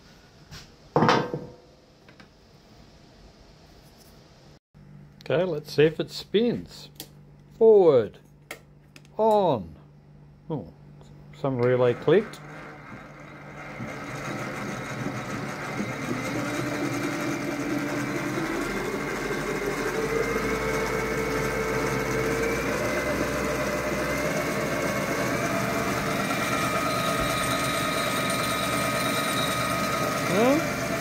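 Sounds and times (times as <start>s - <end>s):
lathe motor whine: 11.5s - 31.0s.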